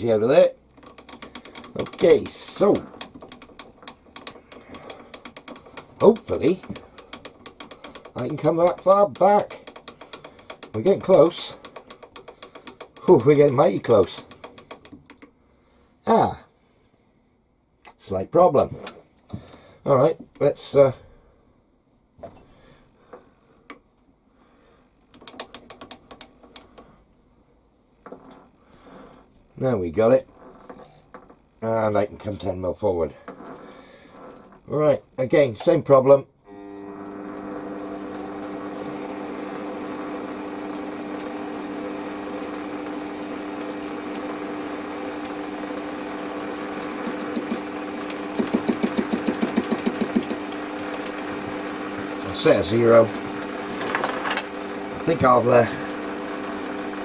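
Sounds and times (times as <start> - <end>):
rapid light regular knocks: 0.7 - 15.4, 48.3 - 50.6
lathe running: 0.8 - 14.9, 36.5 - 57.0.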